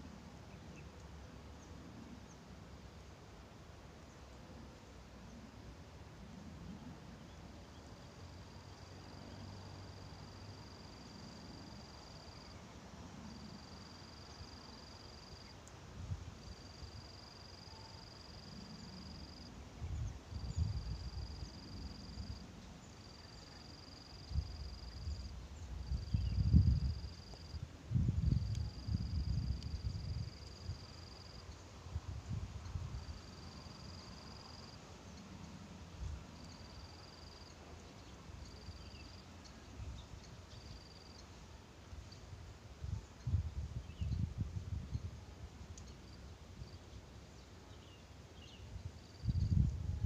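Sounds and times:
low rumble of wind: 0.0s - 50.0s
insect buzzing whine: 16.1s - 42.2s, 47.8s - 50.0s.

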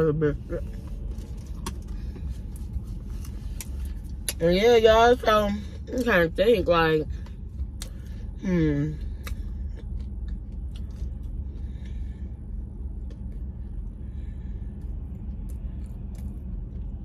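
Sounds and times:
low rumble inside car: 0.0s - 17.0s
soft chewing: 0.6s - 4.4s, 9.0s - 17.0s.

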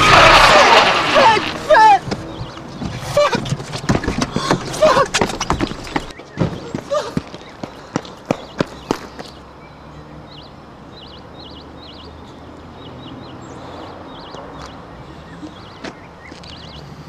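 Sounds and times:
steady outdoor hum: 0.0s - 17.0s
small birds chirping: 1.2s - 17.0s
running footsteps on tarmac: 2.0s - 9.5s, 15.7s - 16.8s.

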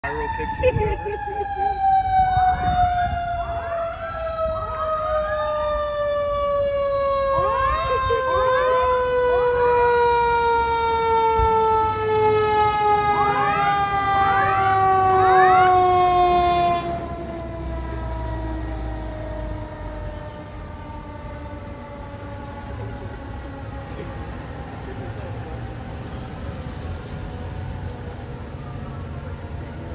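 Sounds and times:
fire engine siren wailing: 0.0s - 29.9s
rising siren sweeps: 0.0s - 29.9s.

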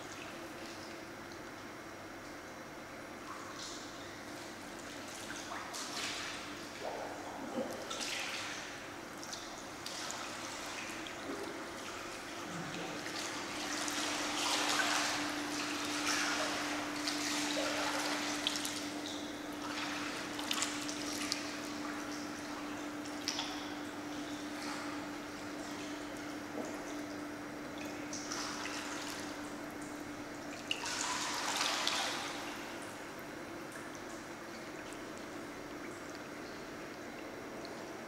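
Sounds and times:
steady low hum: 0.0s - 38.0s
pool water splashing: 3.6s - 36.4s.

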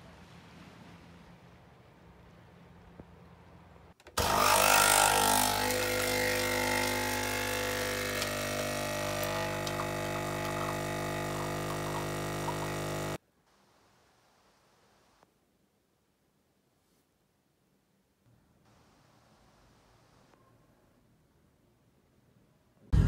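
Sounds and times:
espresso machine pump buzzing: 4.2s - 13.2s.

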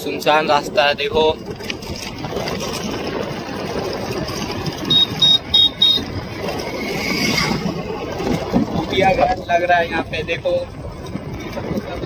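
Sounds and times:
wind and road noise: 0.0s - 12.0s
short high beeps: 4.9s - 6.1s.

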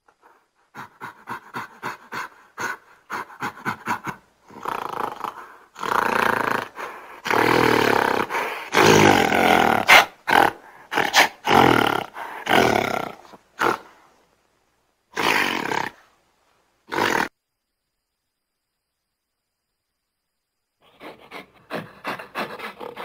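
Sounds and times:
gorilla grunting and roaring: 0.7s - 14.0s, 15.1s - 16.0s, 16.9s - 17.3s.

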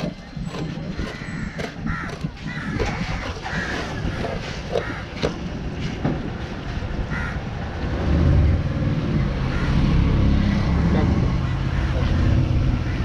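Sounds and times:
crow cawing: 1.0s - 5.3s, 7.1s - 7.4s.

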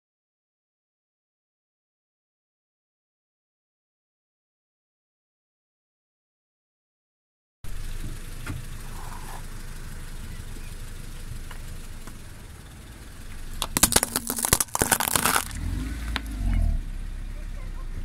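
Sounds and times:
car engine rumble: 7.6s - 18.0s
glass bulb shattering: 13.6s - 15.6s.

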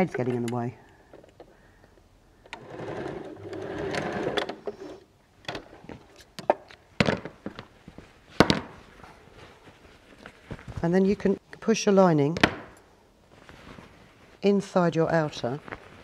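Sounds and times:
sewing machine stitching: 2.5s - 4.7s
fabric handling clicks and knocks: 5.5s - 11.0s, 15.5s - 16.0s.

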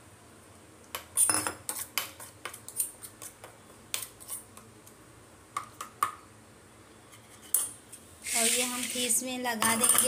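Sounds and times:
spoon scraping metal bowl: 8.3s - 10.0s.

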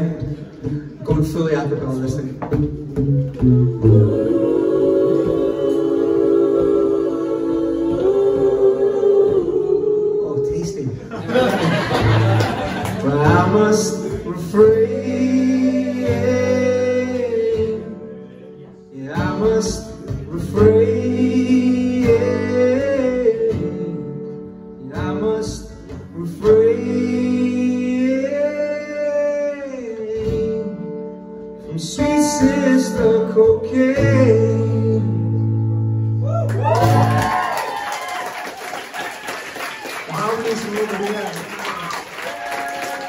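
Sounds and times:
acoustic guitar chords: 0.0s - 37.7s
man singing: 12.9s - 18.3s, 18.9s - 35.5s.

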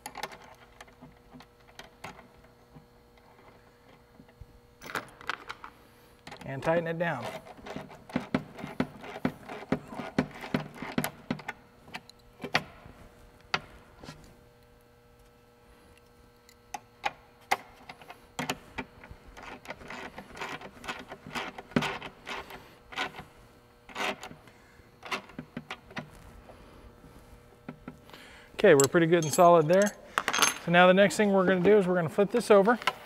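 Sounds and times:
metal wrenches clicking on bolt: 28.7s - 30.0s.

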